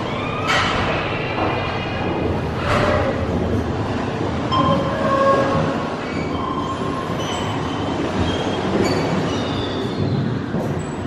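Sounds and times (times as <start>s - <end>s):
steady rumbling rush: 0.0s - 8.8s.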